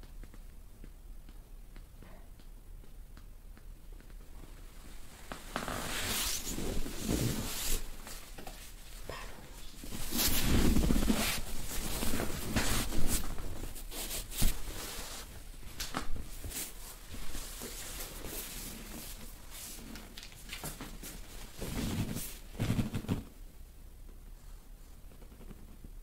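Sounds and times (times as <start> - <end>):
fabric rustling: 4.3 - 23.4.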